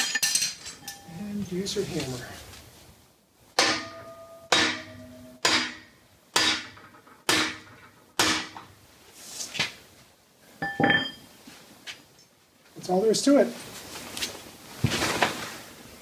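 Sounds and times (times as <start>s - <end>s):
light metal knocks and clinks: 0.0s - 1.1s, 10.6s - 11.3s
hammer striking steel rod: 3.6s - 8.6s.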